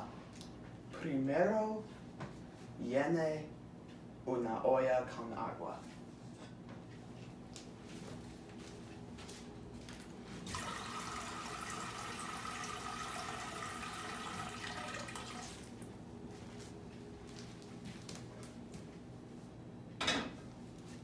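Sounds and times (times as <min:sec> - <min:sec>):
faucet filling metal pot: 0:10.5 - 0:15.5.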